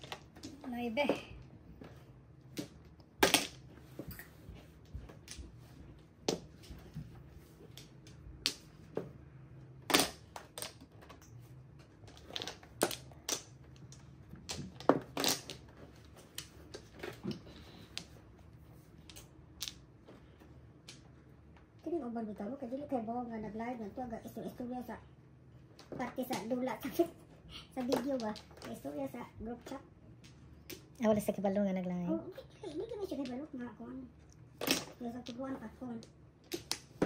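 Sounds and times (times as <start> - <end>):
mahjong tiles clacking: 0.0 - 1.5, 7.7 - 9.0, 9.8 - 18.2, 19.0 - 20.0, 27.8 - 29.0, 34.2 - 37.0.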